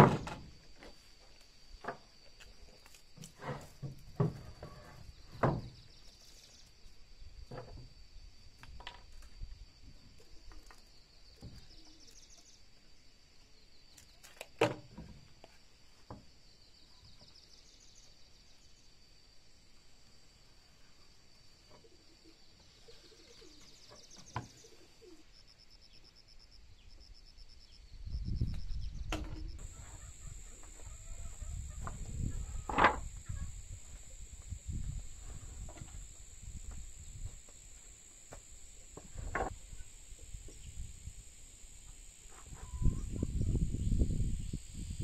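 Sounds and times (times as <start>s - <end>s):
high-pitched drone: 29.6s - 45.0s.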